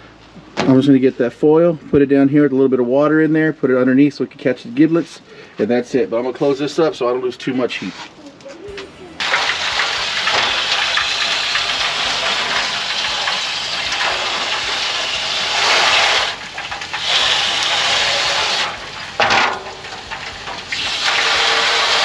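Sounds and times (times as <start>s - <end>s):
water pouring into foil pan: 9.2s - 22.0s.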